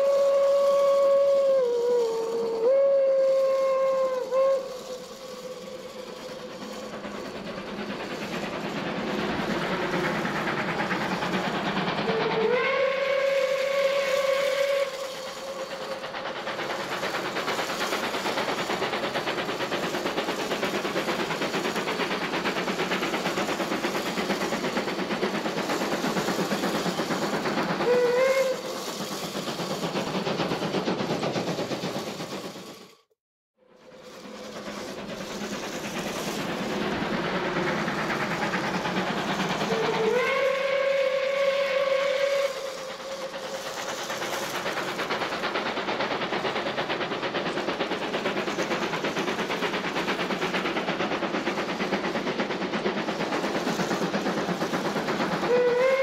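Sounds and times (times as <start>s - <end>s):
steam whistle: 0.0s - 6.8s, 12.0s - 16.0s, 27.8s - 28.8s, 39.6s - 43.6s, 55.4s - 56.0s
steam locomotive running: 0.0s - 56.0s.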